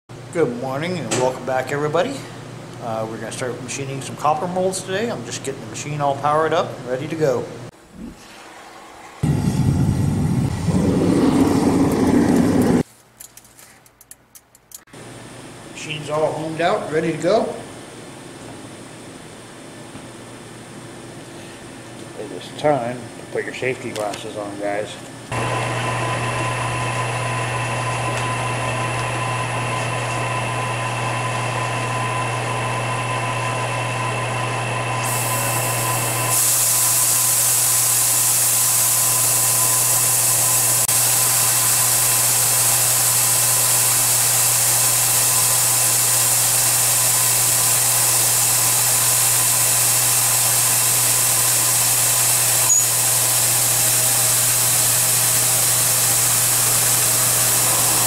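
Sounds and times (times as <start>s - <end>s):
milling machine spindle humming: 25.3s - 58.0s
coolant blast hissing: 34.9s - 58.0s.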